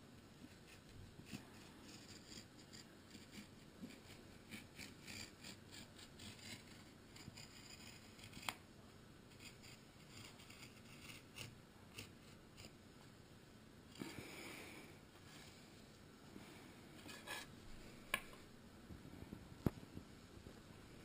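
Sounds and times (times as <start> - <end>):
knife blade scraping along ruler: 9.4 - 12.8, 17.0 - 17.5.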